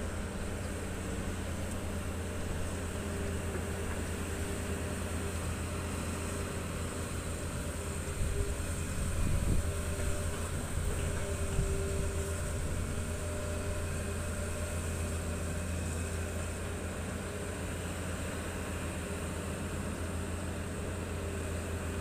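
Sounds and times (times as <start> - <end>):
excavator diesel engine running: 0.0 - 22.0.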